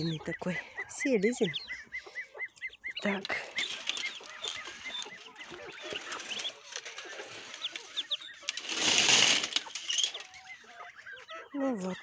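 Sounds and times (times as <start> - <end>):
ducklings peeping: 0.0 - 12.0
loud rustling scrape: 3.7 - 10.3.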